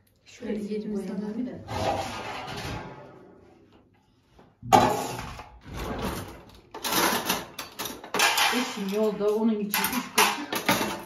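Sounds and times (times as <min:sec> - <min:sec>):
cutlery clattering: 0:04.7 - 0:11.0
cutlery drawer opening: 0:05.6 - 0:09.1.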